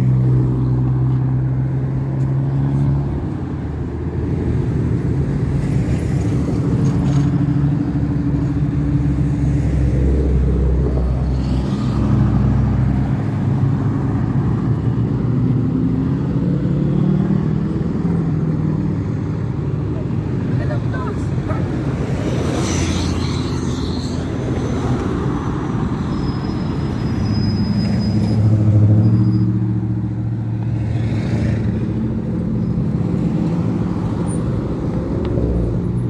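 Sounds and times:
cars passing in slow traffic: 0:00.0 - 0:36.0.

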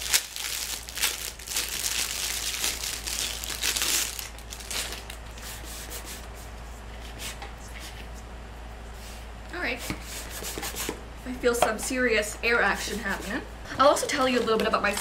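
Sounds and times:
plastic packaging crinkling: 0:00.0 - 0:05.4.

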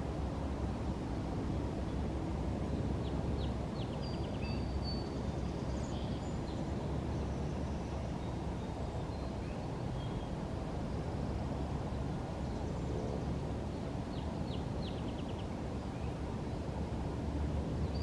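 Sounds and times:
low outdoor background rumble: 0:00.0 - 0:18.0
small birds chirping: 0:02.6 - 0:11.7, 0:12.3 - 0:16.3, 0:17.8 - 0:18.0.

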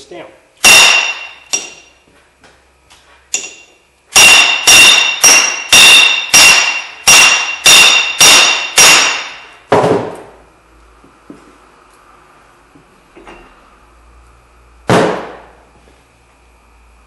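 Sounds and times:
hammer striking steel tool: 0:00.6 - 0:02.0, 0:03.3 - 0:09.6.

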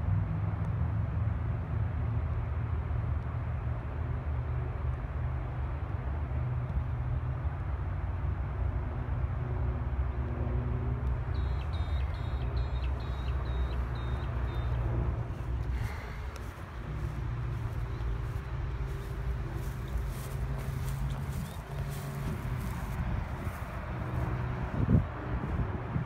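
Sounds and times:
wind buffeting microphone: 0:11.7 - 0:26.0.

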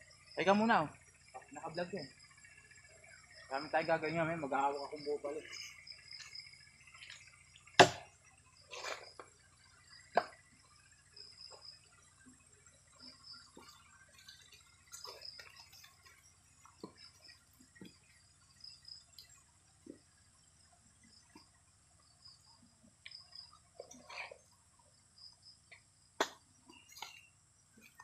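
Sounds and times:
insects chirping: 0:00.0 - 0:28.0
wooden logs knocking: 0:07.0 - 0:08.2, 0:10.1 - 0:10.5, 0:13.5 - 0:18.2.

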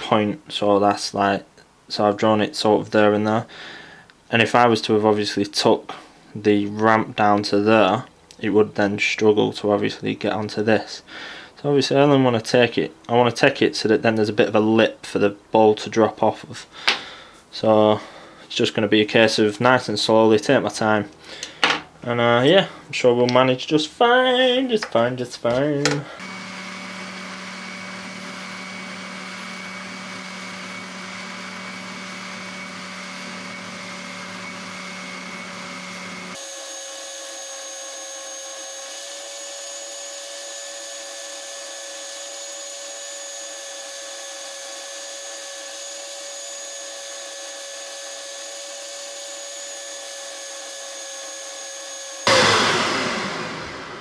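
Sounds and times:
spindle sander motor whine: 0:26.2 - 0:54.0
burst of noise: 0:52.3 - 0:54.0
low hum: 0:52.3 - 0:54.0.

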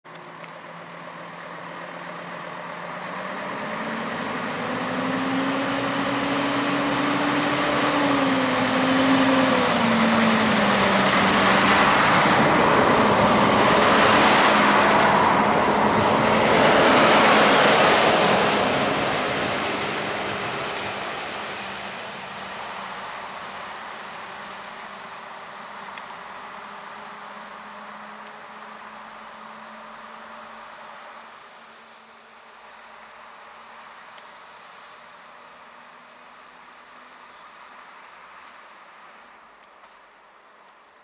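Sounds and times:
diesel railcar engine: 0:00.1 - 0:40.8
high hiss: 0:08.8 - 0:15.9
train wheel noise: 0:08.9 - 0:24.8.

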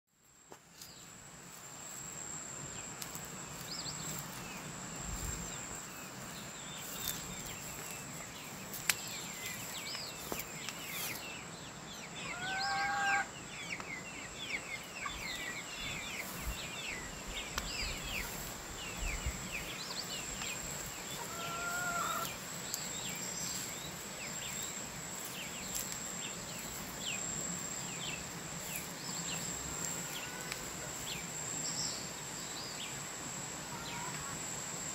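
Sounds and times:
small birds chirping: 0:01.9 - 0:33.0
fowl-like call: 0:12.2 - 0:13.3, 0:21.2 - 0:22.3.

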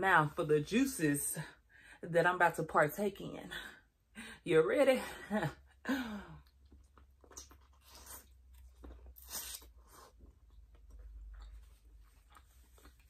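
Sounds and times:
chewing corn on the cob: 0:06.6 - 0:13.0.

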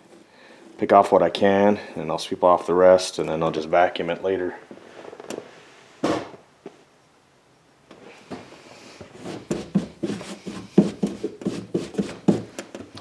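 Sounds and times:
hand brushing carpet: 0:09.1 - 0:12.6.

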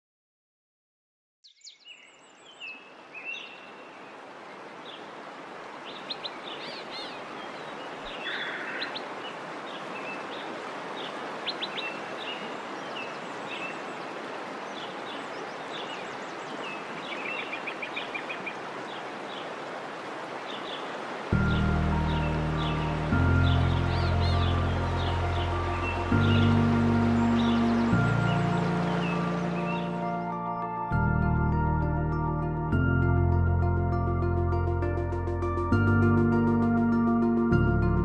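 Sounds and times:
birds chirping and whistling: 0:21.4 - 0:30.3.

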